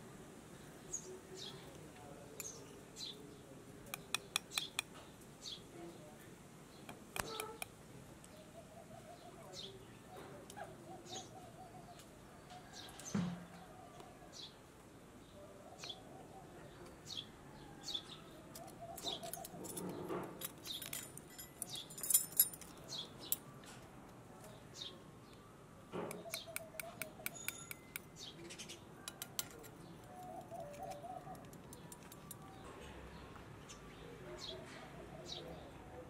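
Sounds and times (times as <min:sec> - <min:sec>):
small birds chirping: 0:00.4 - 0:36.0
metal spoon clinking on bowl: 0:26.1 - 0:28.2.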